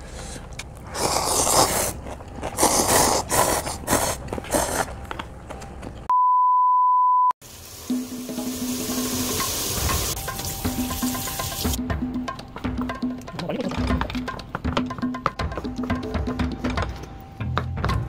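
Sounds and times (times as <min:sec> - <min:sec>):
people slurping noodles: 0:00.8 - 0:05.0
high pure beep: 0:06.1 - 0:07.4.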